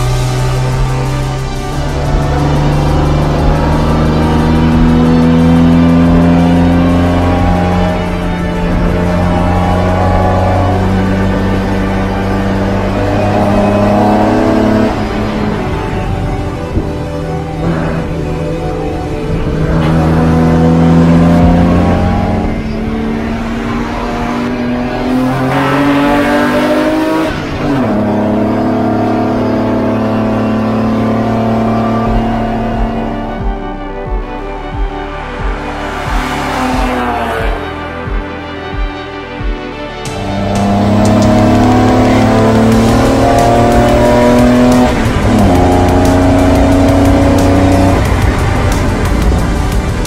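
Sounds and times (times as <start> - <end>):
race car engine accelerating: 0.0 - 37.7, 40.1 - 50.0
race car engine under power: 40.1 - 50.0.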